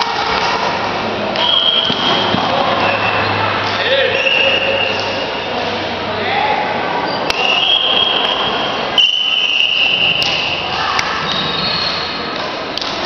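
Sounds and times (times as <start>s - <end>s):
high squeals: 1.4s - 5.6s, 7.0s - 12.3s
hand slapping shuttlecock: 4.8s - 5.2s, 10.0s - 11.2s, 12.3s - 13.0s.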